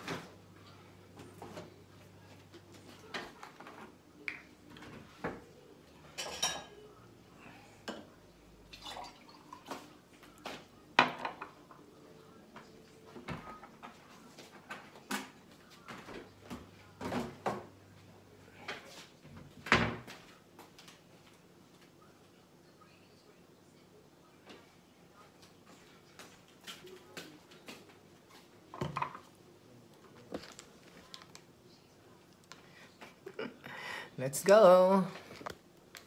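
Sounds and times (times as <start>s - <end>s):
dishes and cutlery clinking: 6.0s - 7.0s.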